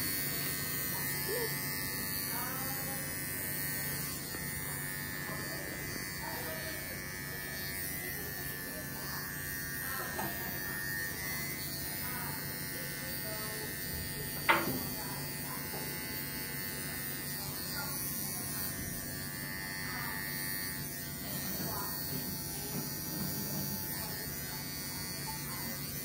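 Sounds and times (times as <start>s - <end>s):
dog clippers buzzing: 0.0s - 26.0s.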